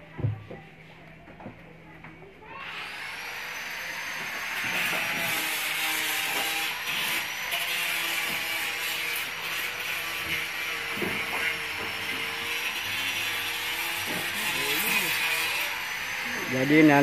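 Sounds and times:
power tool motor whine: 2.6s - 17.0s
harsh hissing grind: 3.6s - 17.0s.

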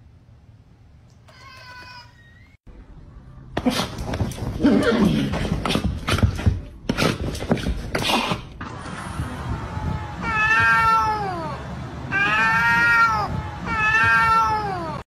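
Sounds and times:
cat yowling: 10.2s - 15.0s.

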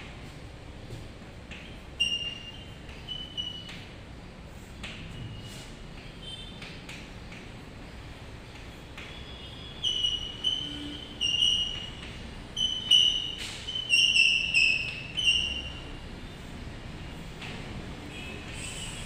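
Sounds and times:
chalk squeaking on blackboard: 1.8s - 4.0s, 8.8s - 15.9s.

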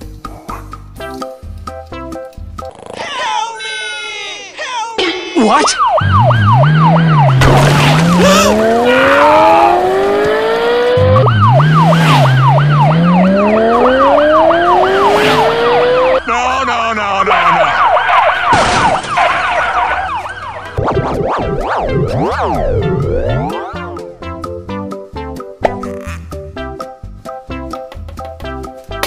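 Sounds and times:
police siren yelping: 5.5s - 24.1s
engine revving: 6.0s - 16.5s
sharp whooshes: 7.3s - 9.0s, 14.6s - 16.0s.

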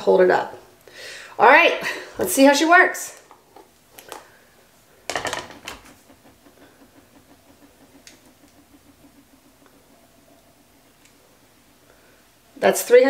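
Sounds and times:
faint low pulsing: 5.7s - 12.7s.

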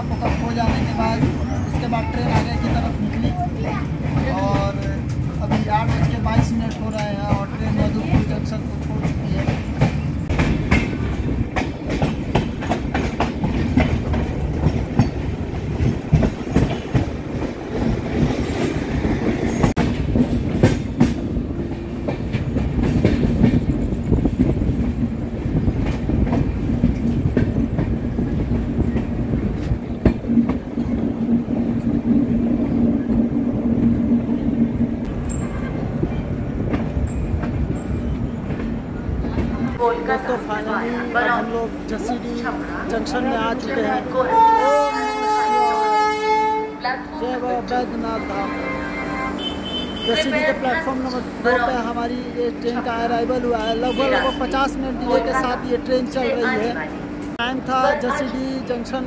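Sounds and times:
train wheels clickety-clack: 0.0s - 40.3s
train rumble with low hum: 0.0s - 59.0s.

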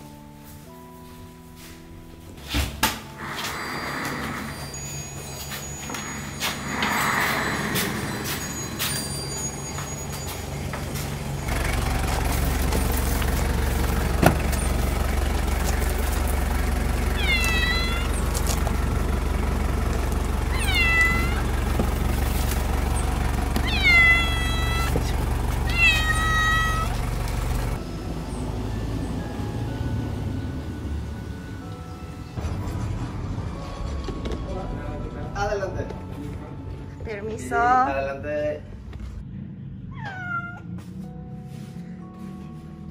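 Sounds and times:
steady low rumble: 10.6s - 27.8s
cat meowing: 17.1s - 18.2s, 20.5s - 21.5s, 23.6s - 25.0s, 25.6s - 27.0s, 39.9s - 40.7s.

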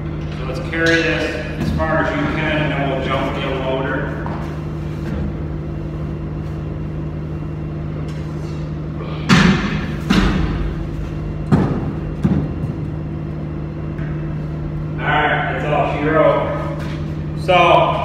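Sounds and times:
heavy thumps echoing in concrete silo: 0.0s - 5.8s, 8.7s - 15.0s
steady low hum: 0.0s - 18.0s.

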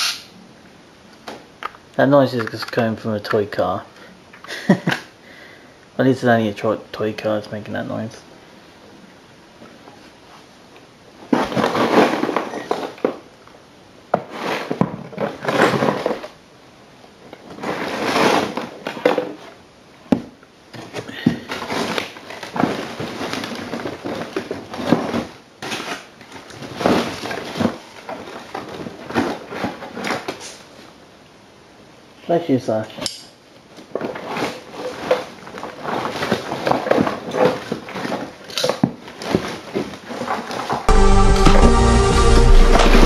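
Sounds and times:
small hard objects clattering: 11.3s - 13.3s, 14.2s - 16.4s, 33.8s - 40.9s.

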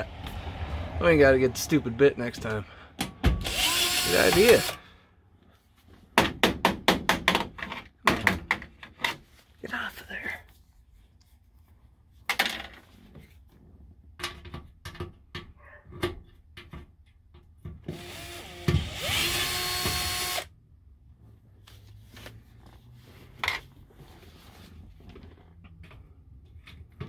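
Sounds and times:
cordless drill driving screw: 3.4s - 4.8s, 17.9s - 20.5s.

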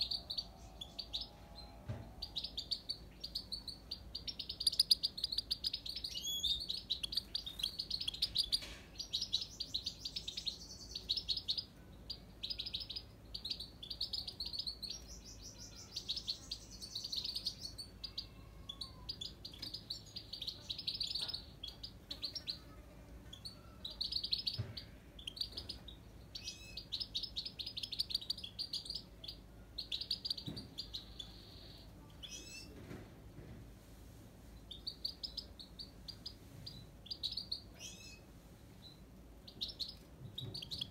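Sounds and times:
goldfinch twittering song: 2.2s - 18.2s.

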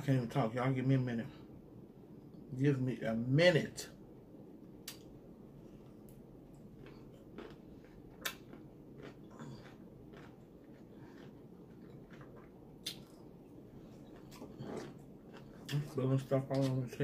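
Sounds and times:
low steady hum: 0.0s - 17.0s
wet chewing smacks and clicks: 6.0s - 15.9s.

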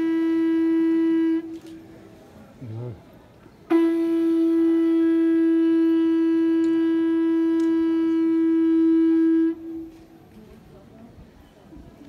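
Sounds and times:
animal horn blown in long note: 0.0s - 1.8s, 3.7s - 10.1s.

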